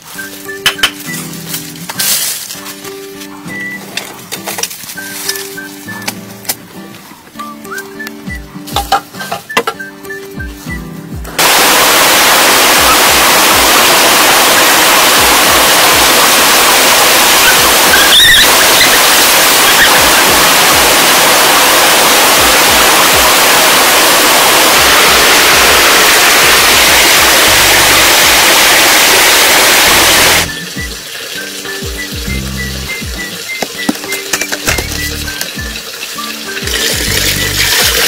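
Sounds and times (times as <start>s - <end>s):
stream rushing over rocks: 11.4s - 31.5s.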